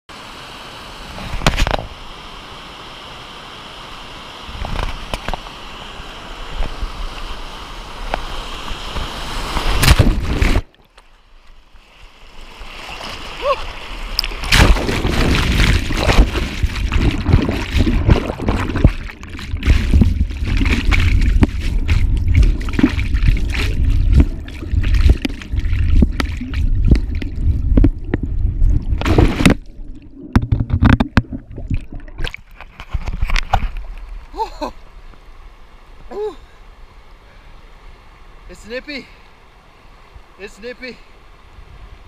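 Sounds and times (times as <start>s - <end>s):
water sloshing and gurgling: 8.0s - 36.2s
loud water splash: 9.0s - 10.7s, 12.5s - 32.7s
whitewater rushing and churning: 12.0s - 32.4s.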